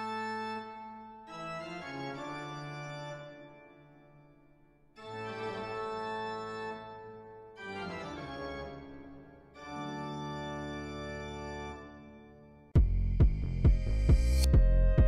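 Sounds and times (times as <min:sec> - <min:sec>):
slow sustained music chords: 0:12.8 - 0:15.0.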